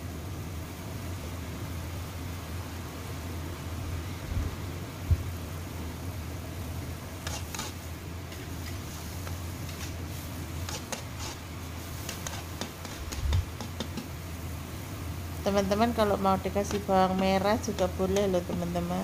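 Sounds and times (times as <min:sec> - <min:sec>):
steady low hum: 0:00.0 - 0:19.0
metal spatula scraping a wok: 0:07.2 - 0:07.8, 0:08.4 - 0:14.0.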